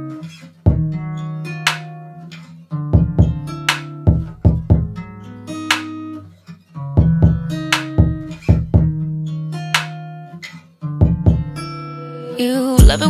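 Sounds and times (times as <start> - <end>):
plucked string riff: 0.0 - 13.0
bass line: 12.8 - 13.0.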